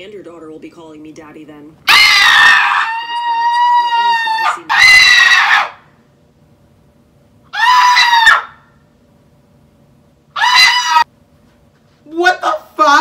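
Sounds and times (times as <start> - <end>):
person shrieking in falsetto: 1.9 - 5.8, 7.5 - 8.6, 10.4 - 11.1.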